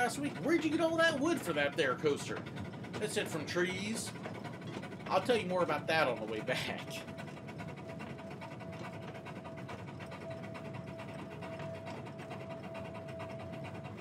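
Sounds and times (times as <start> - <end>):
steam train clattering: 0.0 - 14.0.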